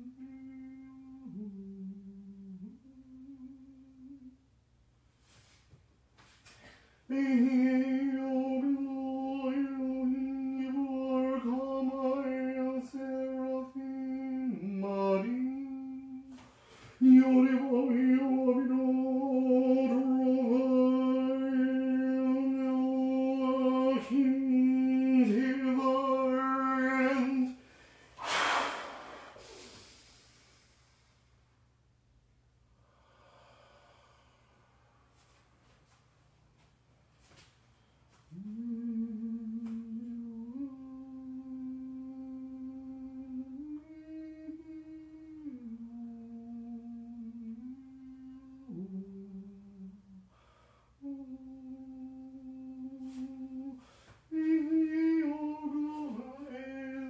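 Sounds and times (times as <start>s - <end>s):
man intoning long held tones: 0.0s - 4.5s, 7.1s - 31.0s, 38.3s - 50.4s, 51.0s - 57.0s
breath out: 27.7s - 31.2s.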